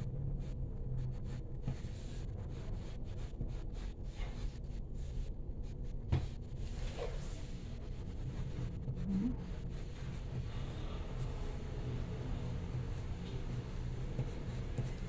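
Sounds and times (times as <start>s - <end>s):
low background rumble and hum: 0.0s - 15.0s
pencil scratching on paper: 1.1s - 5.3s, 12.9s - 15.0s.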